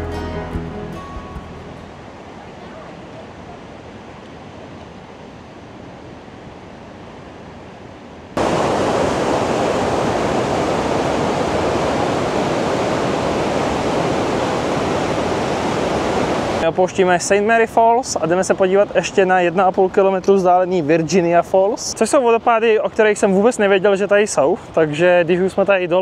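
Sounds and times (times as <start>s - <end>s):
waterfall rushing: 8.4s - 17.3s.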